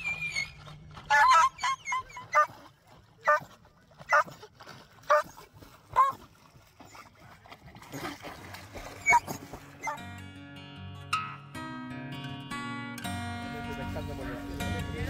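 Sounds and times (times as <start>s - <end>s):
dog whining yelps: 0.0s - 2.6s, 3.2s - 3.5s, 4.1s - 4.3s, 5.1s - 5.3s, 6.0s - 6.2s, 9.0s - 10.0s.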